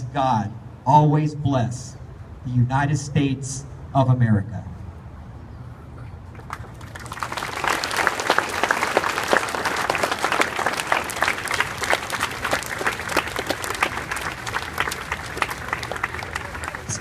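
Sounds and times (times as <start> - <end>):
crowd applauding: 6.3 - 17.0.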